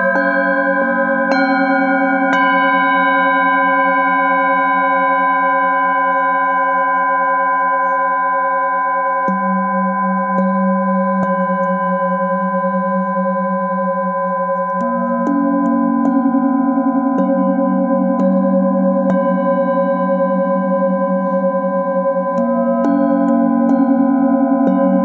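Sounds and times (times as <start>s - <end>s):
mallet strikes on bowls: 0.0s - 4.2s, 9.2s - 13.8s, 14.5s - 25.0s
singing bowls ringing: 0.0s - 25.0s.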